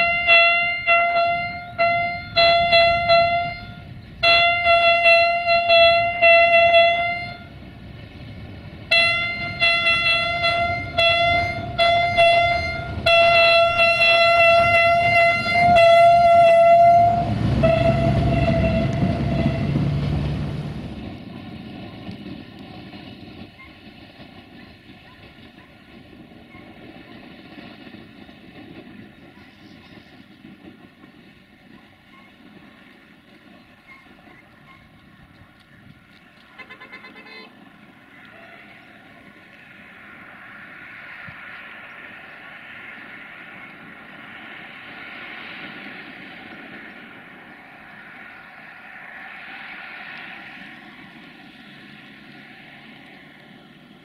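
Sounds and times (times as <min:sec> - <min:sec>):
train horn blasts: 0:00.0 - 0:07.6, 0:08.9 - 0:20.8, 0:36.6 - 0:37.6
distant train rumble: 0:00.0 - 0:54.0.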